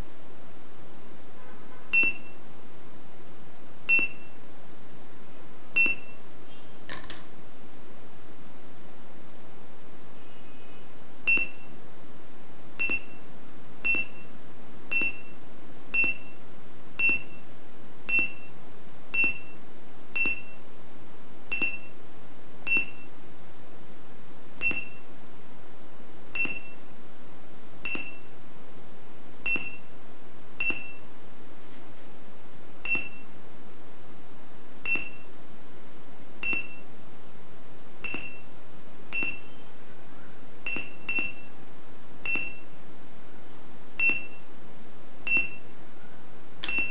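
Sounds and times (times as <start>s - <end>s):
short high-pitched beeps: 1.9s - 2.4s, 3.9s - 4.4s, 5.8s - 6.8s, 11.3s - 11.8s, 12.8s - 14.3s, 14.9s - 16.4s, 17.0s - 17.5s, 18.1s - 19.6s, 20.2s - 20.6s, 21.5s - 22.0s, 22.7s - 23.1s, 24.6s - 25.1s, 26.4s - 26.8s, 27.8s - 28.3s, 29.4s - 29.9s, 30.6s - 31.1s, 32.8s - 33.3s, 34.8s - 35.3s, 36.4s - 36.9s, 38.0s - 38.5s, 39.1s - 39.7s, 40.6s - 41.5s, 42.2s - 42.8s, 44.0s - 44.5s, 45.2s - 45.7s, 46.6s - 46.9s.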